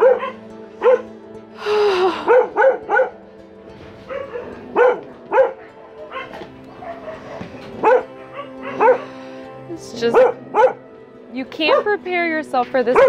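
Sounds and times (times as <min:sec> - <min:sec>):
dogs barking: 0:00.0 - 0:01.1, 0:02.2 - 0:03.2, 0:03.9 - 0:09.4, 0:10.0 - 0:11.0, 0:11.6 - 0:12.0.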